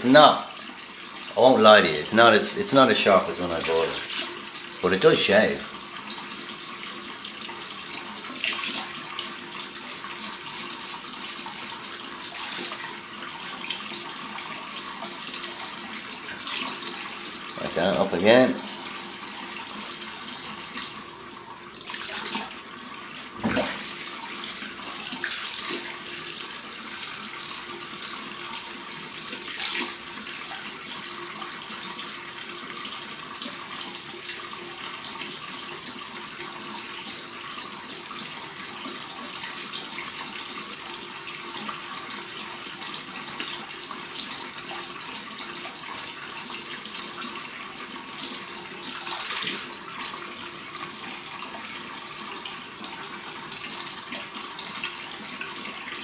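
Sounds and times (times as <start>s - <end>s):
tap running into sink: 21.9s - 25.9s.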